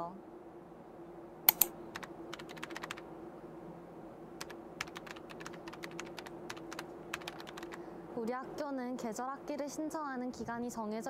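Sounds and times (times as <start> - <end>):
steady low hum: 0.0 - 11.0
keyboard typing: 1.5 - 3.0, 4.4 - 7.8.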